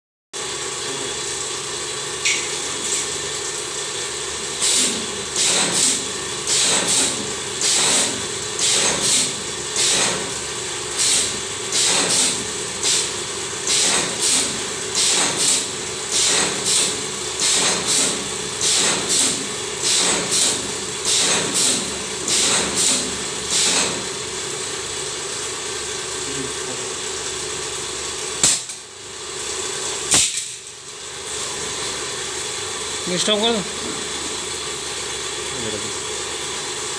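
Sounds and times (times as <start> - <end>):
machine hum: 0.4 - 36.9.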